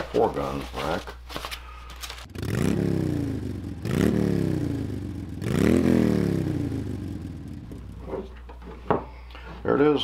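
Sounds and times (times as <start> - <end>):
engine-like whine revving: 2.3 - 8.2.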